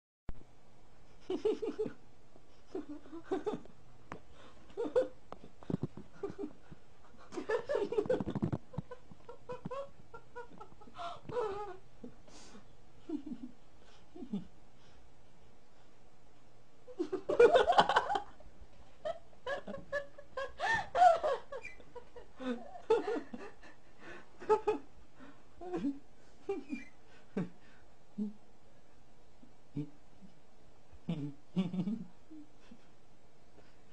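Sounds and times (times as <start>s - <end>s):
person laughing quietly: 1.2s - 3.8s, 4.4s - 15.0s, 19.0s - 28.4s, 31.0s - 33.0s.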